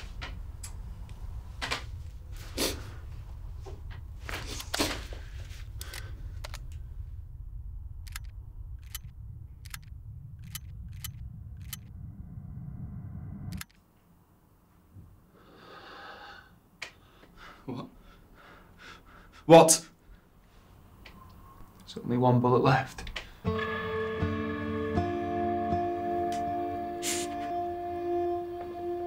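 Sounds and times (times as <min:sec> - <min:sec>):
low drone: 0:00.0 - 0:13.7, 0:23.5 - 0:29.0.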